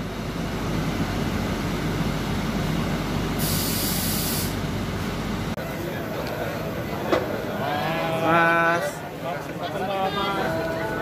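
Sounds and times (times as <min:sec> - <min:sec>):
tram interior rumble: 0:00.0 - 0:03.5, 0:04.5 - 0:09.6
sharp hiss: 0:03.4 - 0:04.6.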